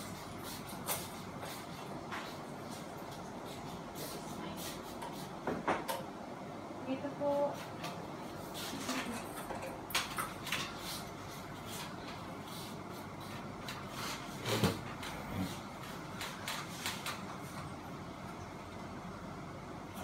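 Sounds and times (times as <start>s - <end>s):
fan parts clicking and knocking: 4.9s - 6.2s, 7.4s - 12.4s, 13.2s - 17.8s.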